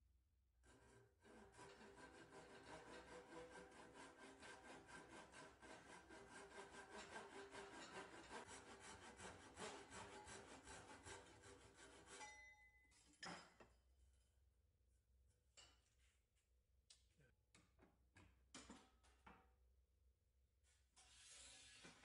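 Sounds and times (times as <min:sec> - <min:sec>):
saw rasping through wood: 0:00.6 - 0:12.4.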